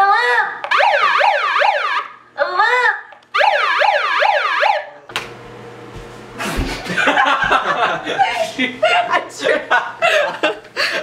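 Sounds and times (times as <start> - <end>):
megaphone siren wailing: 0.6 - 2.2, 3.3 - 5.0.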